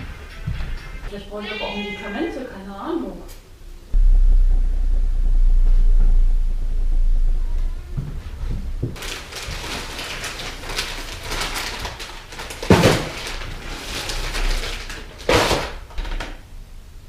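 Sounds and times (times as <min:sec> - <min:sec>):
plastic bag crinkling: 0:09.0 - 0:15.9.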